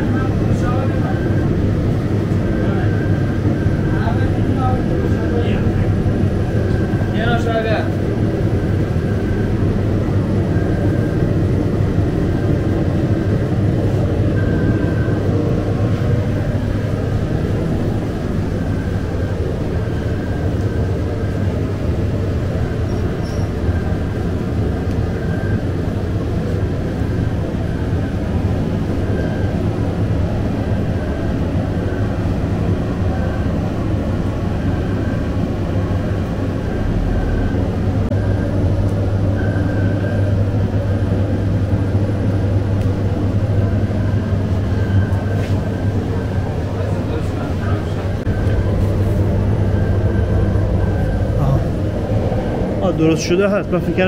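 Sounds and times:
machinery drone: 0.0 - 54.0
faint high squeak: 22.9 - 23.5.

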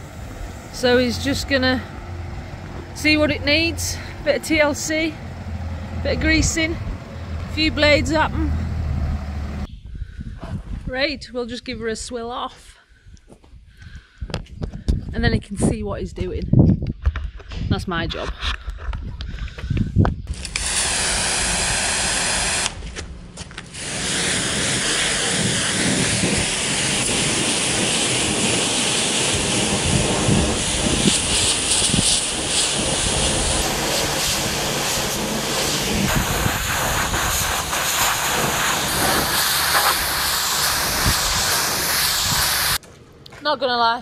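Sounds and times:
pressure washer spraying: 20.3 - 22.8, 23.7 - 42.8.

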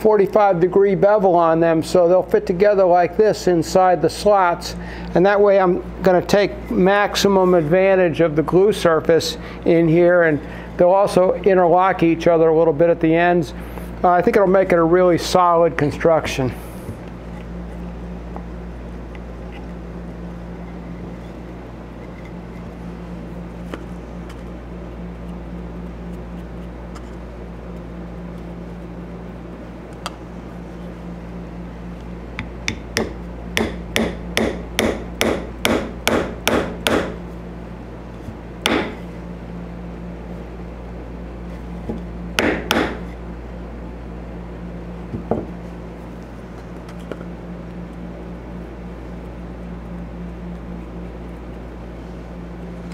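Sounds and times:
steady low hum: 0.0 - 52.9
small hammer tapping: 32.4 - 37.1, 38.7 - 39.0, 42.4 - 43.0.

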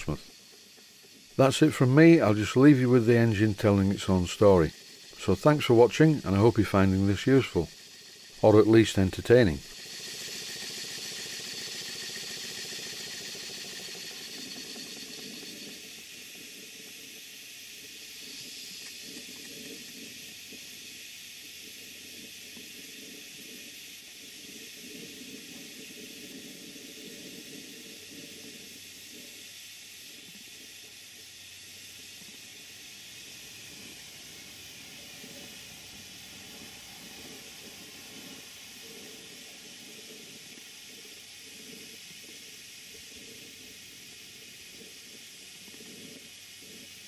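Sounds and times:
steam engine hissing: 0.0 - 47.0.

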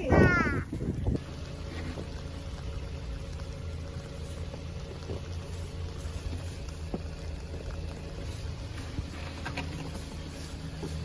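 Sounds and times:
steady low rumble: 0.0 - 11.0
brush sweeping snow: 8.1 - 11.0.

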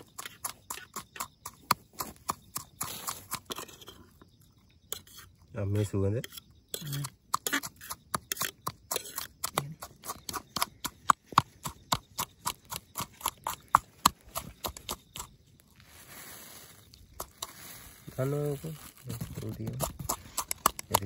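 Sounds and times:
sharp clicks and knocks: 19.4 - 21.0.

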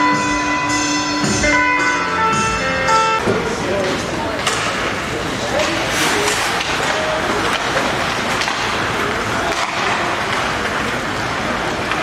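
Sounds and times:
crowd noise: 0.0 - 12.0
hockey sticks and puck clacking: 3.2 - 12.0
skates rushing on ice: 3.3 - 12.0.

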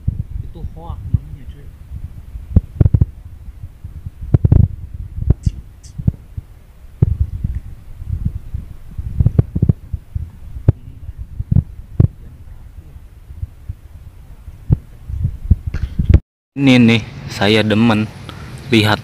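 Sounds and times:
wind buffeting microphone: 0.0 - 16.2.

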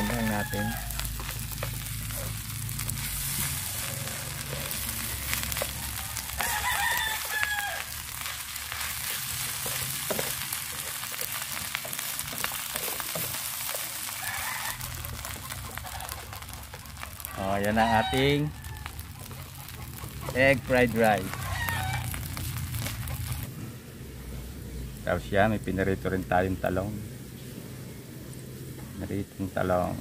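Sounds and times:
rooster crowing: 0.0 - 1.4, 3.5 - 8.0, 14.1 - 16.4, 17.2 - 19.3, 21.1 - 22.5
wooden spatula scraping a pan: 0.0 - 5.8, 8.1 - 17.3, 18.9 - 23.5
fried rice sizzling in a pan: 0.0 - 23.6.

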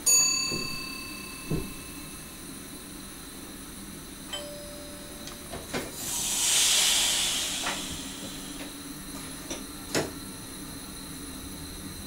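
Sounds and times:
compressed air rush: 5.9 - 8.8.

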